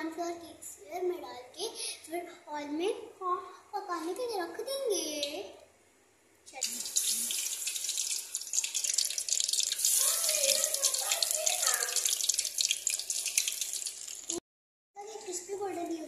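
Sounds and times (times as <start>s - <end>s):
dough sizzling in hot oil: 6.6s - 14.4s.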